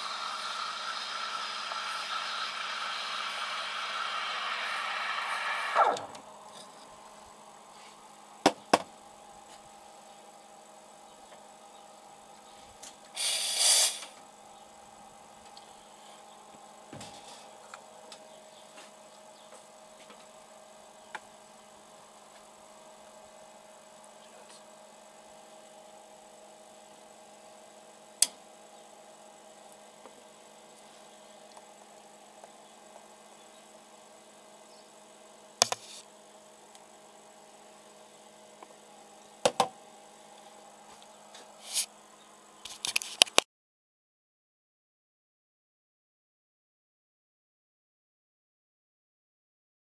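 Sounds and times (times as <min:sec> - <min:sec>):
steam wand hissing: 0:00.0 - 0:06.2, 0:13.1 - 0:14.2
faint steady hum: 0:00.0 - 0:43.4.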